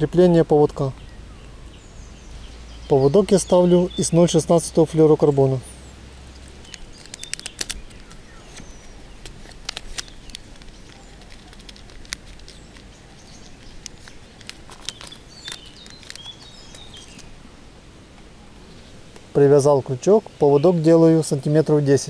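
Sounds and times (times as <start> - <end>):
birds chirping faintly: 0.0 - 22.0
packet clicks and crinkles: 6.2 - 17.4.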